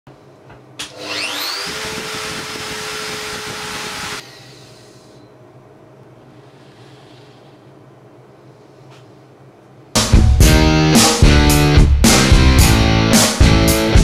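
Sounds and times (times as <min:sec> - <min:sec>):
router motor high-pitched whine: 0:00.9 - 0:04.2.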